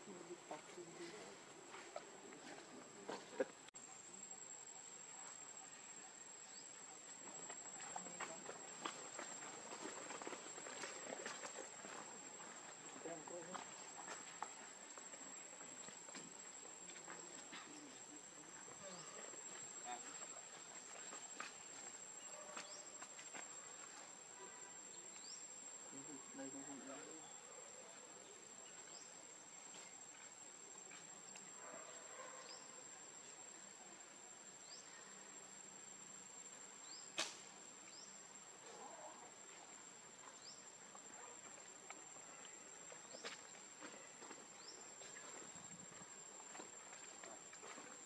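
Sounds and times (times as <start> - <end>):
sharp click: 37.2 - 37.4.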